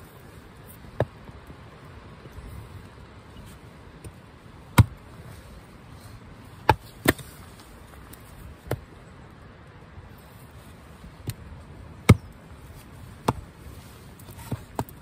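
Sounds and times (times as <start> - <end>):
hatchet chopping firewood: 4.0 - 5.0, 6.6 - 7.5, 12.0 - 12.4, 13.2 - 13.5, 14.3 - 15.0.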